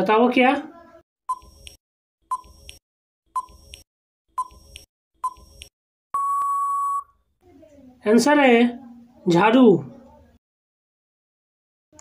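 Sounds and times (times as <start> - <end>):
long steady beep: 6.2 - 7.2.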